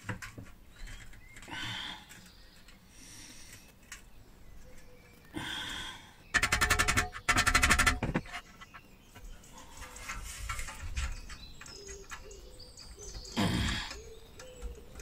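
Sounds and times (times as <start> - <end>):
hammer rapidly tapping metal: 6.3 - 8.4
scraping inside metal box: 6.4 - 8.8.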